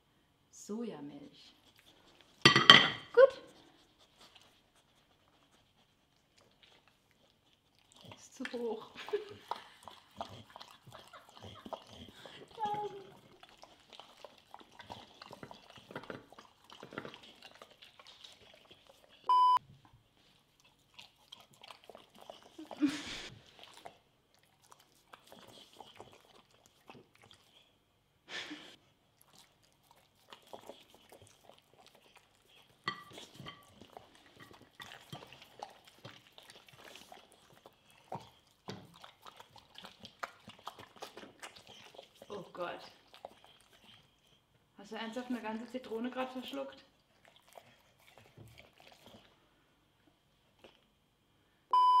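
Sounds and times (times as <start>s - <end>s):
dogs chewing and licking: 1.5s - 27.8s, 28.8s - 51.0s
short electronic beep: 19.3s - 19.6s, 51.7s - 52.0s.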